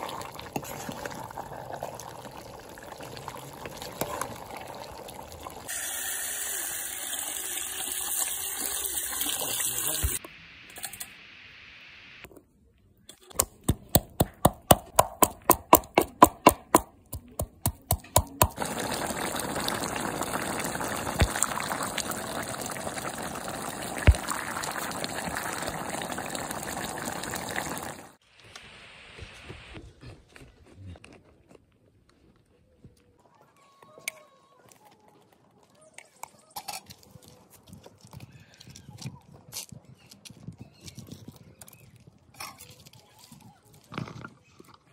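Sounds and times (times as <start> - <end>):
stew bubbling in a pot: 0.0 - 10.2, 14.2 - 28.2
wooden pestle pounding in mortar: 13.4 - 18.6.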